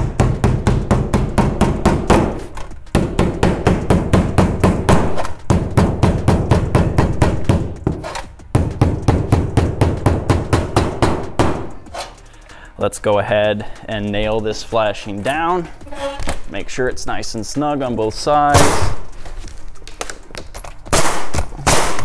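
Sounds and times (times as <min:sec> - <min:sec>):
hammer striking metal: 0:00.0 - 0:12.2, 0:18.5 - 0:19.1.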